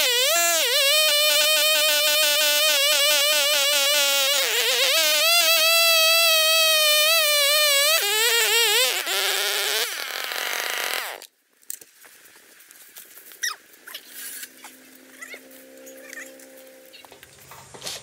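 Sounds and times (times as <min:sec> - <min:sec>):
chainsaw ripping log: 0:00.0 - 0:11.3.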